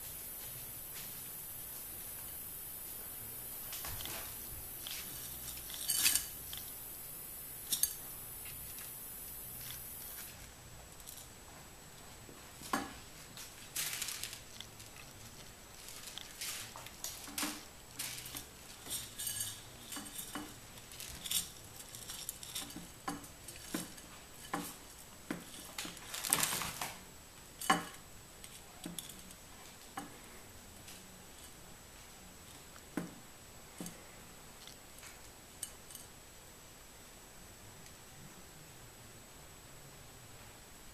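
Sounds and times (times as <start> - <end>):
kibble rattling in ceramic plate: 4.8 - 6.6, 18.0 - 24.8.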